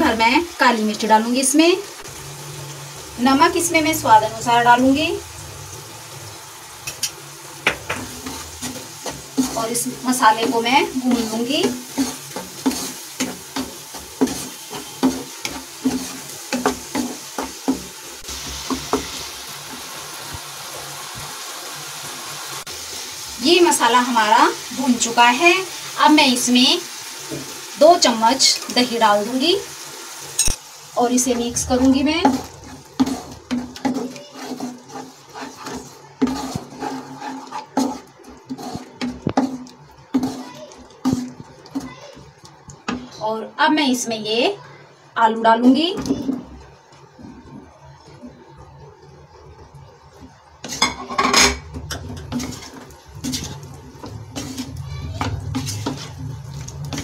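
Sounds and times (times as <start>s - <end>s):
masala sizzling: 0.0s - 57.0s
wooden spatula scraping pan: 7.9s - 19.2s, 31.3s - 42.2s, 50.6s - 57.0s.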